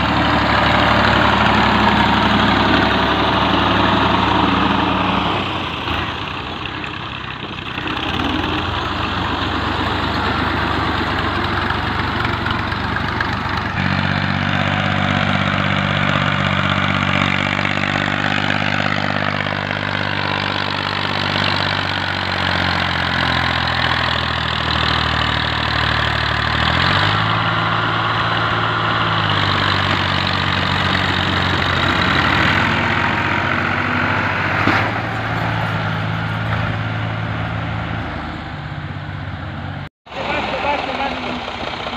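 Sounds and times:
tractor engine under load: 0.0s - 41.9s.

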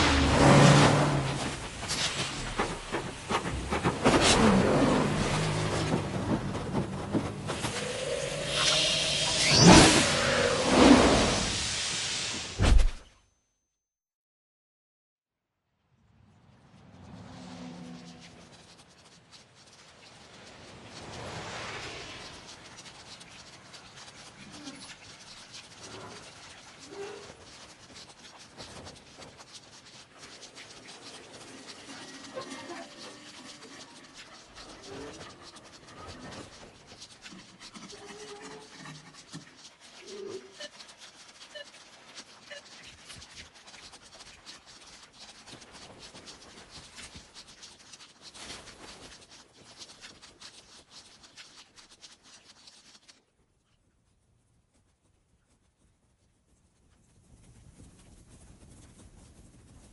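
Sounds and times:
rain on wet pavement: 20.3s - 47.5s.

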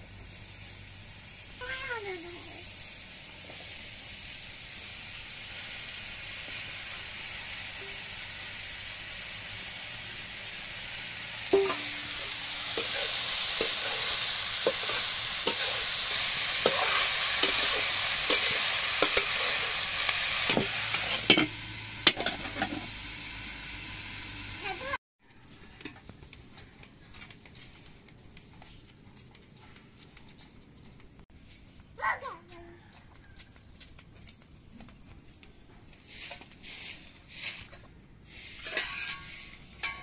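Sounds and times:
mushrooms sizzling in a pan: 0.0s - 25.0s
metal spatula scraping a pan: 10.8s - 23.0s, 36.1s - 40.0s
steel bowl clanking: 11.2s - 23.0s, 38.6s - 40.0s.

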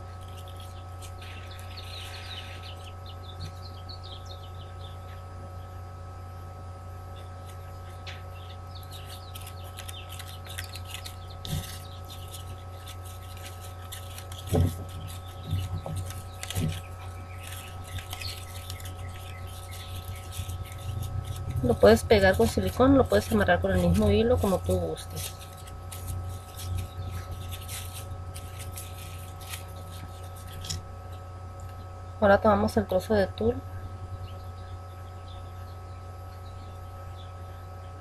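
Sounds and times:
ribbon rustling: 0.0s - 2.9s, 8.8s - 30.9s
steady low hum: 0.0s - 38.0s.

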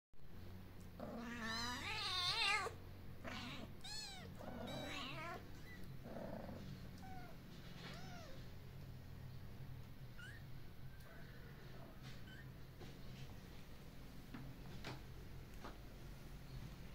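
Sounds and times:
faint low hum: 0.2s - 16.9s
kittens mewing: 1.0s - 8.6s.

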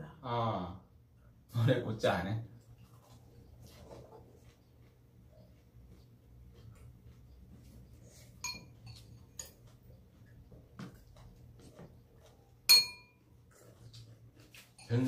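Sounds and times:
utensils clinking on metal bowls: 8.4s - 9.6s, 12.7s - 13.1s, 14.6s - 15.0s.

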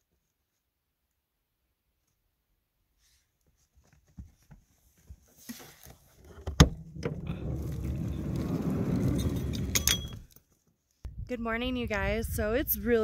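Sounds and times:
sliding door rumbling: 6.6s - 10.2s.

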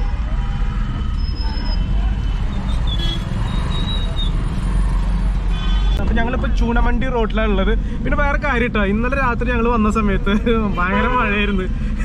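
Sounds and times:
faint high tones from traffic: 0.0s - 6.0s
car engine and road noise: 0.0s - 12.0s.

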